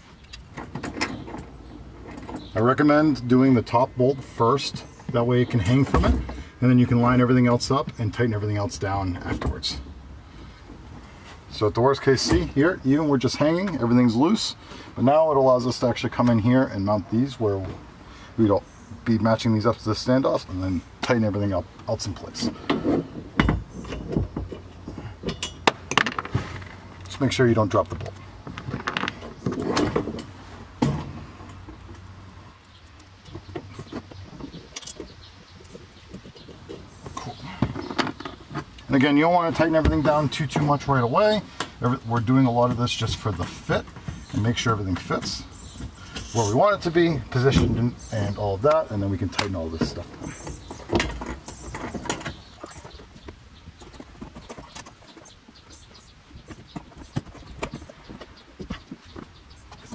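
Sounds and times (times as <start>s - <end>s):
small metallic clicks and knocks: 22.6s - 27.2s, 27.8s - 38.9s.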